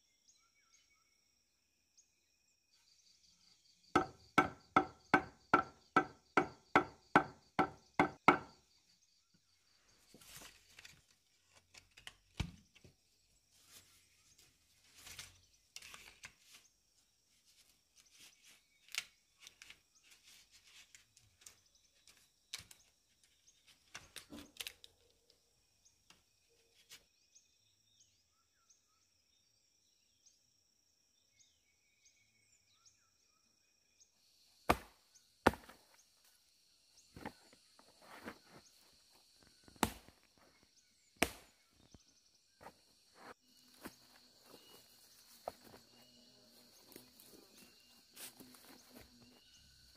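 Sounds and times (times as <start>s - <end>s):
faint insect drone: 0.0s - 49.9s
loud wood chopping strikes: 4.0s - 8.6s, 34.7s - 35.9s, 39.7s - 40.3s, 41.2s - 41.7s
wood knocks and scrapes: 37.2s - 38.8s.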